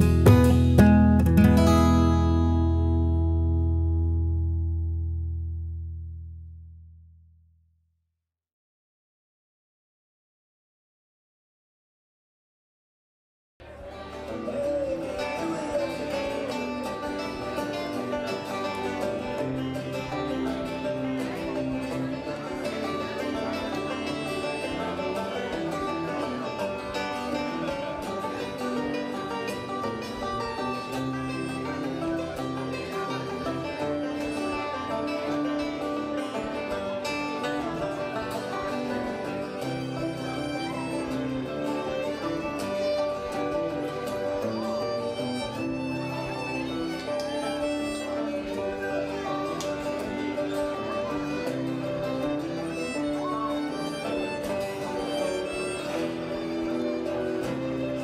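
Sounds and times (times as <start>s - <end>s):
folk-rock song with acoustic guitar: 0.0s - 4.6s, 13.7s - 58.0s
bass and drums: 0.0s - 6.1s
held melody line: 13.9s - 58.0s.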